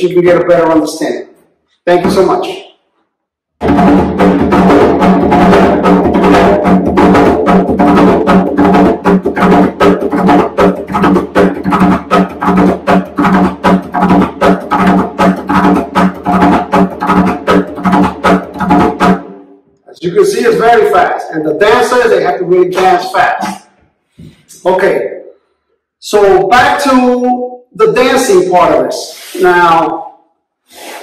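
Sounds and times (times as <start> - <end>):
barrel drum played by hand: 3.6 - 19.4.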